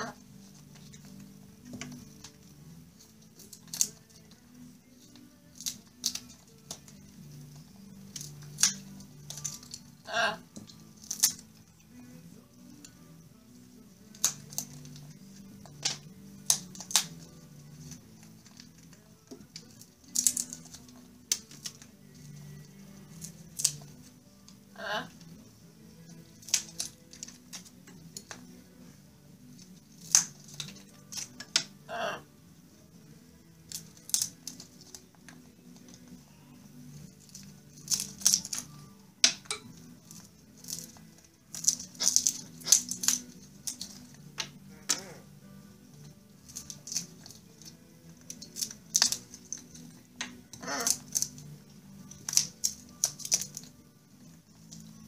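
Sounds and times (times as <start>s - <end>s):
beak splintering wood: 0.0s - 4.4s, 5.1s - 11.6s, 14.0s - 24.1s, 26.1s - 28.5s, 29.6s - 32.2s, 33.6s - 36.1s, 37.2s - 45.2s, 46.4s - 51.5s, 52.1s - 53.7s.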